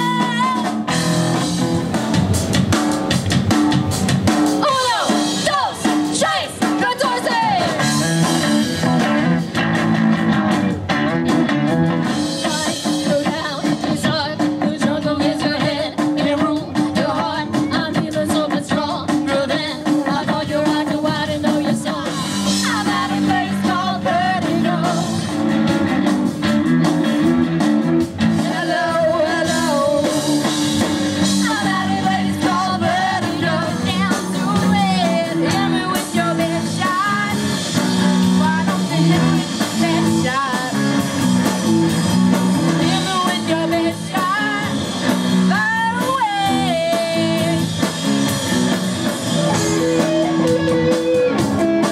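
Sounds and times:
girl singing lead: 0.0 - 0.9, 4.6 - 8.0, 12.2 - 25.6, 28.3 - 41.0, 42.7 - 47.8, 49.4 - 51.9
bass guitar: 0.0 - 51.9
drums: 0.0 - 51.9
electric guitars: 0.0 - 51.9.

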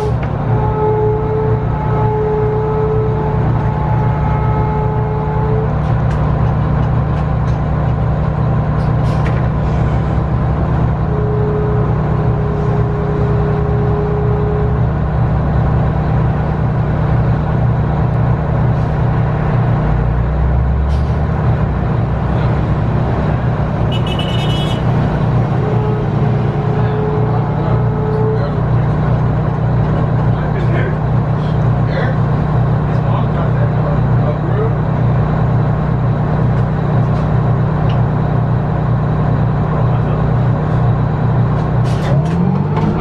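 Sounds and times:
bus diesel engine running: 0.0 - 43.0.

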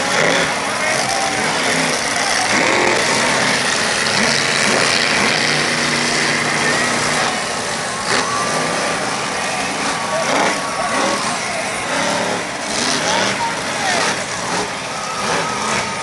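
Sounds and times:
monster truck engines running: 0.0 - 16.0.

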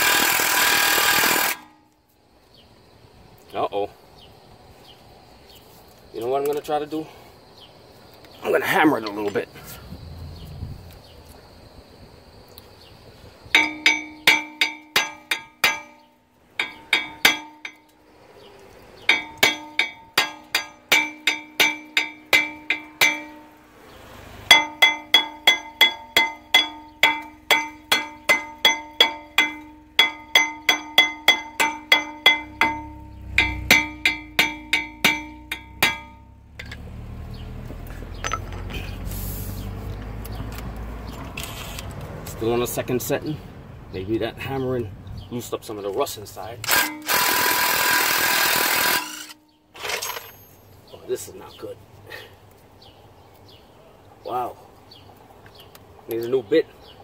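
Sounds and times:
hammer striking metal: 13.5 - 17.8, 19.1 - 23.6, 24.5 - 36.8.

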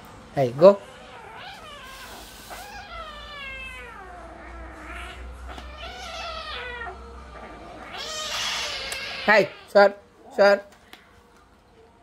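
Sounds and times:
cat yowling: 0.8 - 9.8.

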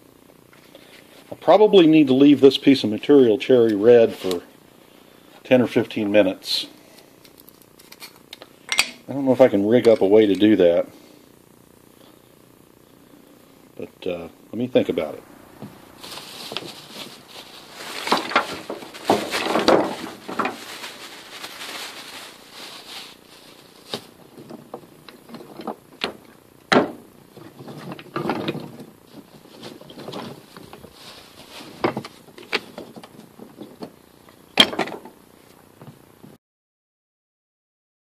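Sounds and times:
rustling tinder and sticks: 15.8 - 25.9, 27.3 - 33.9.

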